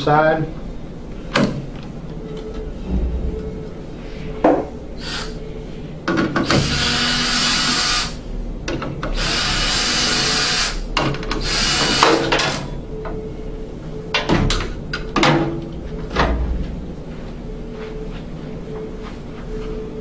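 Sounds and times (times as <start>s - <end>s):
drill driving screws into sheet metal: 6.4s - 8.2s, 9.2s - 10.8s, 11.4s - 12.3s.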